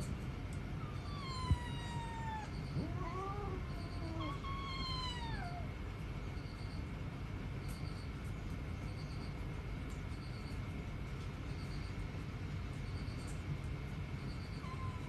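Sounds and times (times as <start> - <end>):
cat meowing: 0.8 - 5.7, 14.6 - 15.0.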